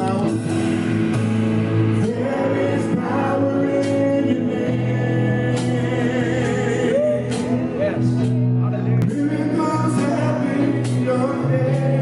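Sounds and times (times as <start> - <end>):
live band playing: 0.0 - 12.0
choir singing: 1.9 - 7.3, 9.8 - 12.0.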